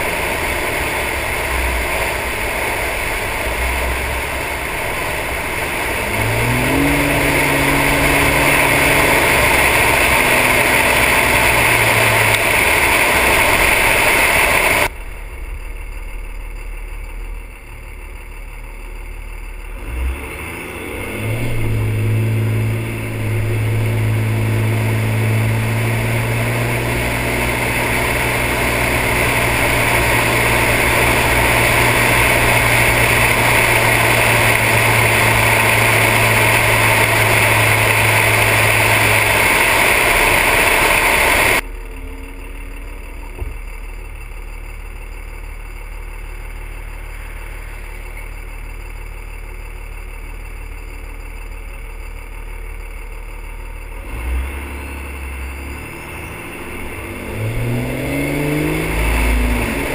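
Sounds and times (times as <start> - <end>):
wind and road rush: 0.0 - 15.5, 19.8 - 41.7, 54.0 - 59.9
diesel truck engine running: 0.0 - 59.9.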